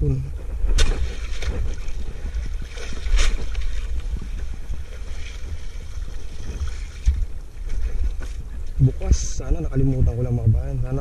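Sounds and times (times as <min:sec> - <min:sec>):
wind rumble on microphone: 0:00.0 - 0:11.0
wet net being hauled: 0:00.7 - 0:08.5.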